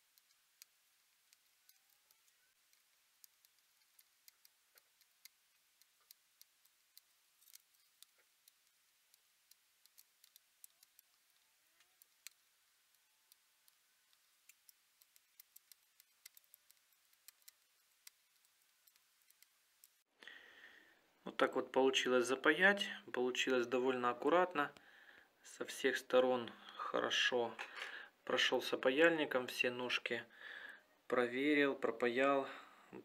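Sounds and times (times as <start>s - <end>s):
soldering flux crackling: 0.0s - 20.1s.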